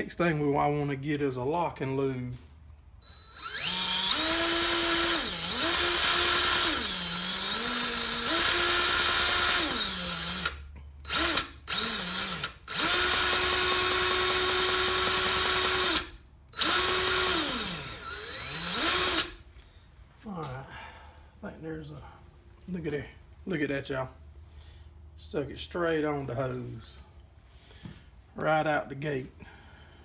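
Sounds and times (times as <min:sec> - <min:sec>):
grease gun motor whining: 0:03.0 - 0:19.4.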